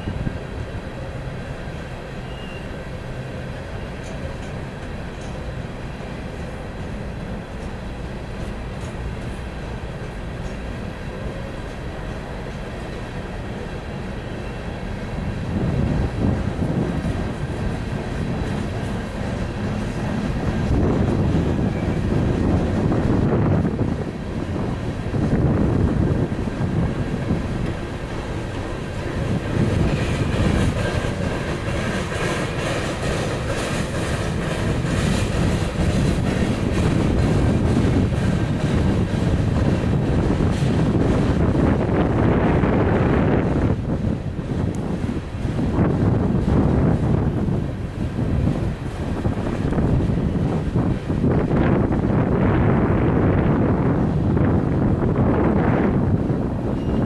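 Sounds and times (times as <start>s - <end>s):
freight cars rolling on rails: 0.0s - 57.0s
wind buffeting microphone: 3.3s - 57.0s.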